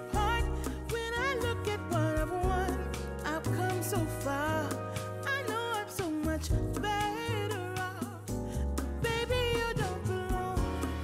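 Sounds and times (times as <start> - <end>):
pop song with vocals and drums: 0.0 - 11.0.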